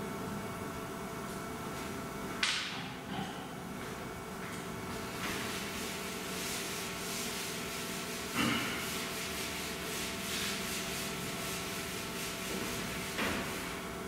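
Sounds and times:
steady background hum: 0.0s - 14.0s
chalk scratching on blackboard: 5.5s - 13.8s.

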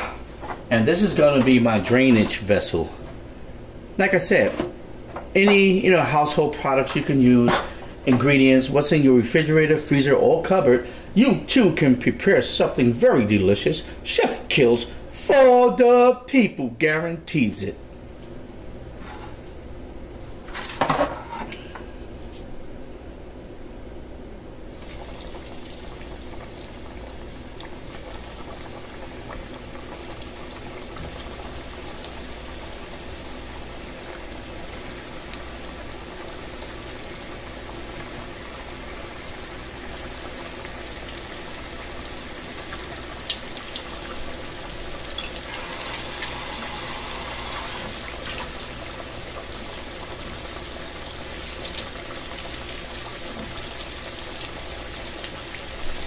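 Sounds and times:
fish deep-frying in oil: 24.6s - 56.0s.

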